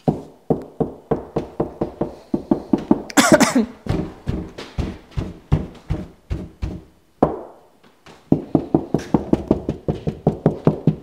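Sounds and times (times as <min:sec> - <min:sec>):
knocking on drywall: 0:00.1 - 0:03.1, 0:03.8 - 0:07.5, 0:08.3 - 0:11.0.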